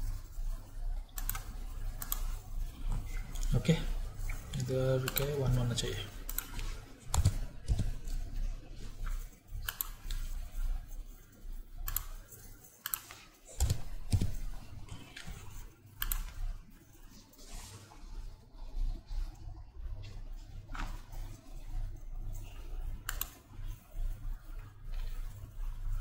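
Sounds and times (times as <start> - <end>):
keyboard keystrokes: 4.5 - 5.4, 6.3 - 8.3, 9.6 - 10.3, 11.8 - 12.2, 12.8 - 16.5
mouse clicks: 9.6 - 10.3, 11.8 - 12.2, 23.0 - 23.4.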